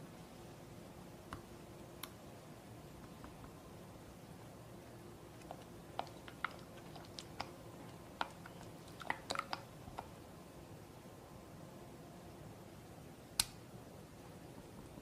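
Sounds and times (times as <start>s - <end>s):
faint hum: 0.0s - 15.0s
spatula stirring batter in glass bowl: 5.4s - 10.2s.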